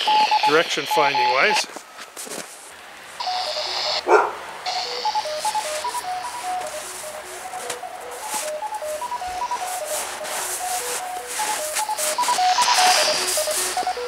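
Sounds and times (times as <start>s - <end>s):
radio hiss: 0.0s - 2.4s, 3.2s - 4.1s, 4.7s - 14.0s
short beeps at varying pitches: 4.7s - 14.0s.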